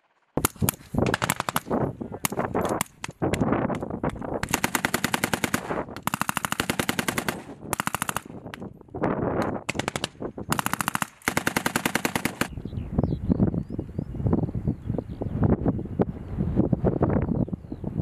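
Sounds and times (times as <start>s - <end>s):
machine gun firing bursts: 0.1s - 3.2s, 4.4s - 8.6s, 9.5s - 12.5s.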